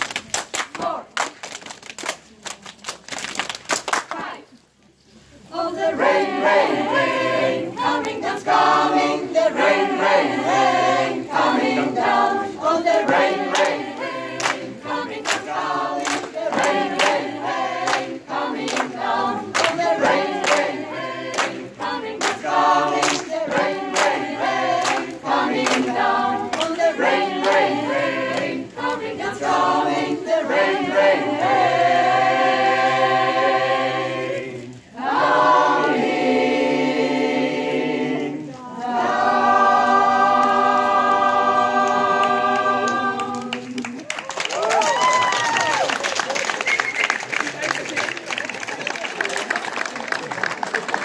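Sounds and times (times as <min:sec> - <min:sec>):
choir singing a cappella: 0:05.4 - 0:44.0.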